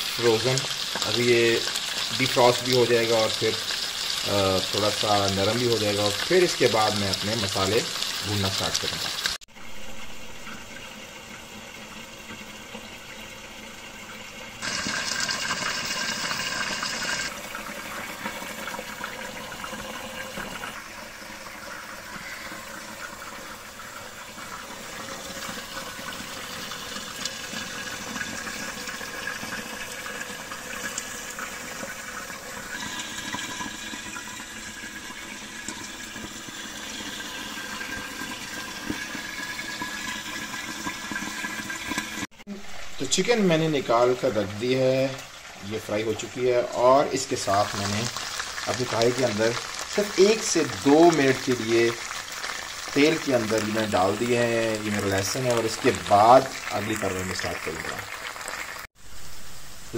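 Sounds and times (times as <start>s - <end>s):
chicken sizzling in hot oil: 0.0s - 13.7s, 14.5s - 59.9s.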